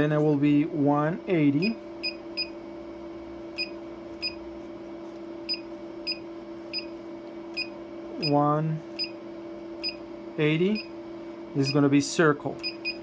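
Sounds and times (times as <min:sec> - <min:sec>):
steady low hum: 0:00.0 - 0:13.0
short high key-press beeps: 0:05.5 - 0:06.9, 0:12.6 - 0:13.0.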